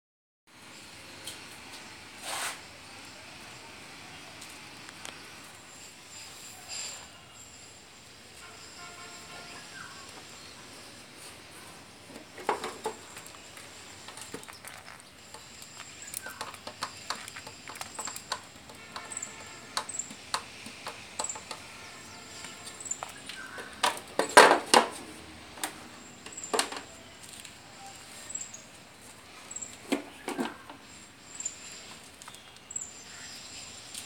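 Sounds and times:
transformer handled on concrete floor: 0:12.1 - 0:21.7, 0:22.4 - 0:27.5, 0:29.7 - 0:30.9.

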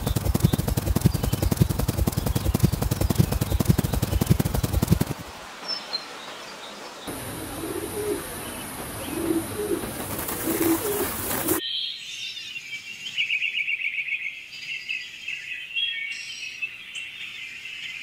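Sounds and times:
running water: 0:00.0 - 0:11.6
birds chirping with fast trill: 0:00.0 - 0:13.2
dove cooing: 0:07.1 - 0:11.6.

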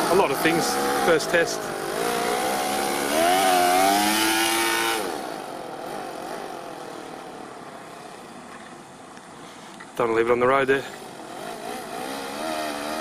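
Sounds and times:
model engine revving: 0:00.0 - 0:07.5, 0:11.0 - 0:13.0.

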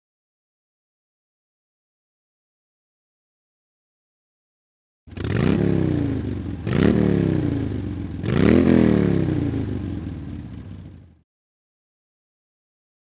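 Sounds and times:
motorcycle engine revving: 0:05.1 - 0:11.2.

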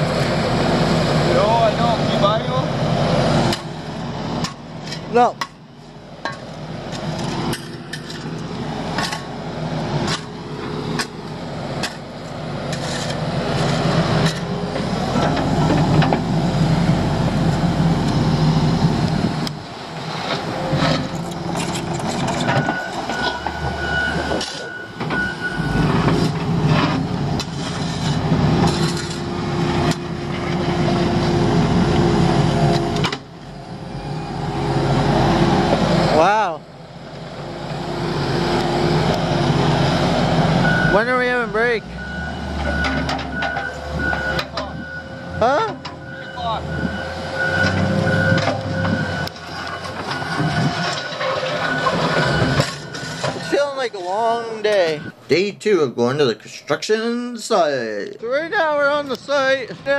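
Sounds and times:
diesel engines under load: 0:00.0 - 0:59.9
shovel scraping gravel: 0:12.7 - 0:14.6, 0:26.1 - 0:29.4.

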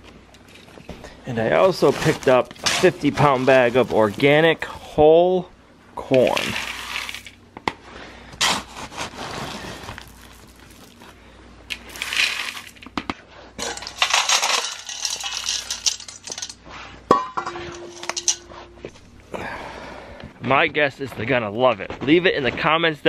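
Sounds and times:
corn kernels poured into metal bowl: 0:06.2 - 0:07.4, 0:11.7 - 0:12.8, 0:13.6 - 0:16.6.

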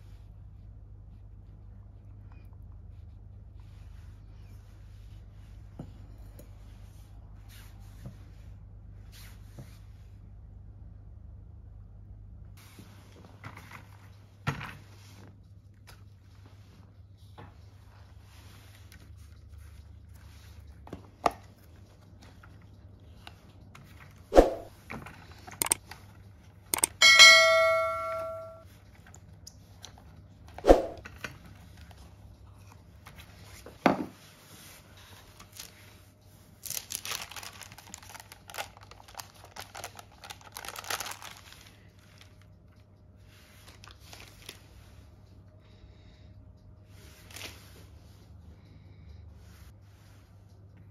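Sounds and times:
metallic clang ringing: 0:26.8 - 0:28.6
baking paper rustling: 0:35.2 - 0:42.4.

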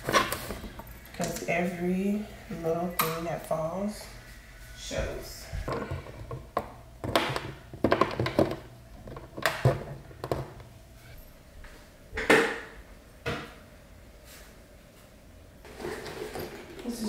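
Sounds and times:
plastic tubes clicking and knocking: 0:05.6 - 0:10.7.

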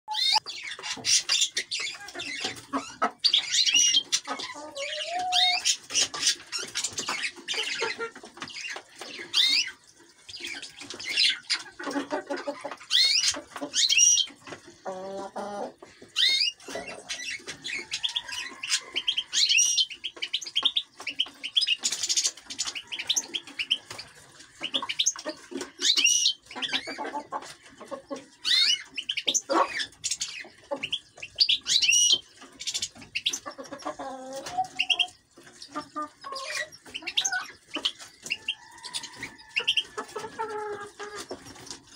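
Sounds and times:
birds chirping and twittering: 0:00.1 - 0:41.9.

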